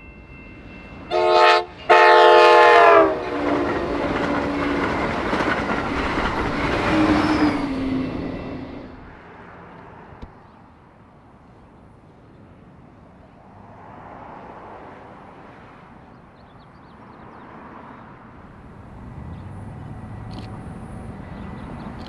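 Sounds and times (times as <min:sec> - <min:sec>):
single click: 0:20.3 - 0:20.6.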